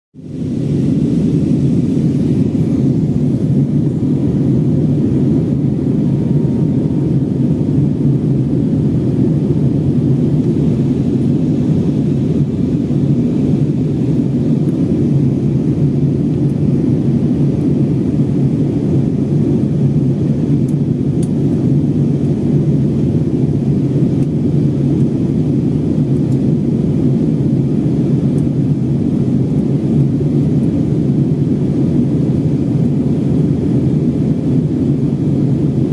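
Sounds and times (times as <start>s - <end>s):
rushing air: 0.2s - 24.9s
jet engines rumbling: 0.2s - 35.9s.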